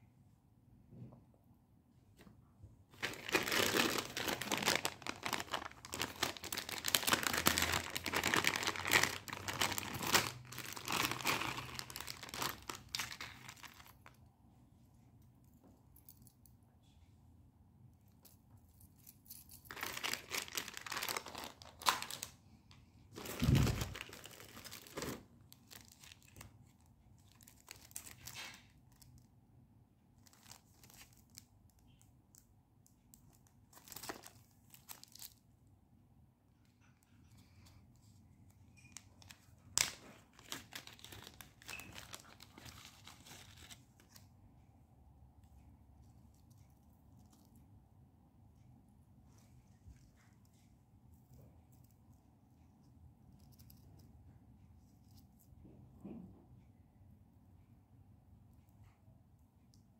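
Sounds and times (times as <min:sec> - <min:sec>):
packaging tearing and crinkling: 0:03.0 - 0:14.0, 0:19.6 - 0:22.3, 0:23.2 - 0:26.4, 0:27.2 - 0:29.1, 0:39.8 - 0:44.2.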